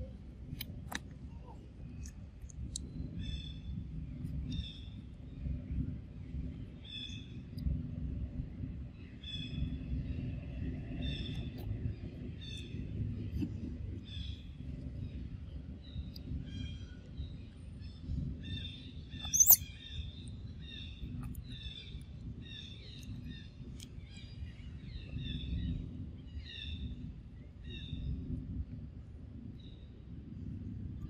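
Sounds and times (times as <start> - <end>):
low background rumble: 0.0 - 31.0
birds chirping: 18.7 - 19.8
high-pitched squeak: 19.2 - 19.6.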